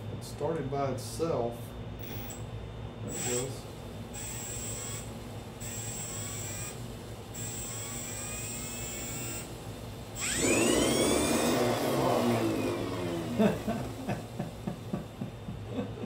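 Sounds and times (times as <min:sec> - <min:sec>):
electric motor whining: 0:04.2 - 0:06.8, 0:07.4 - 0:09.5, 0:10.2 - 0:14.0
loud rough buzz: 0:10.2 - 0:14.4.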